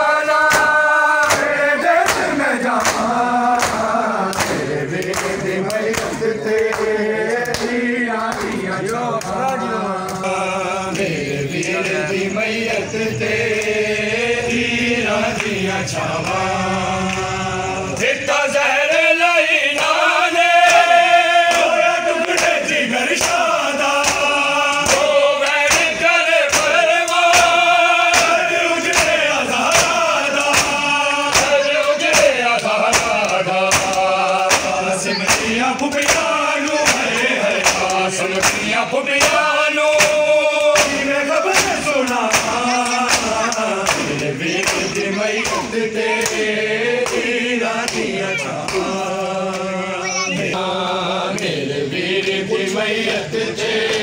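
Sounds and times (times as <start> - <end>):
men chanting in unison: 0.0 - 54.0
hand slaps on bare chests: 0.4 - 10.3, 21.5 - 49.7.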